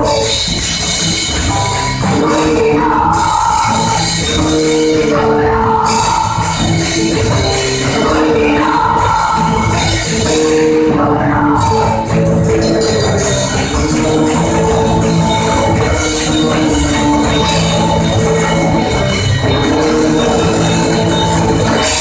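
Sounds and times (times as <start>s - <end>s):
bass guitar: 0.0s - 22.0s
drum kit: 0.0s - 22.0s
electric guitar: 0.0s - 22.0s
person singing long held notes: 2.0s - 13.8s.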